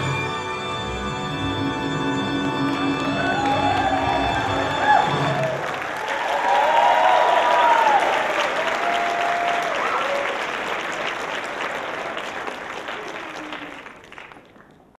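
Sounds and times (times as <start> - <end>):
audience applauding: 2.2 - 15.0
people whooping: 2.8 - 10.7, 12.7 - 14.3.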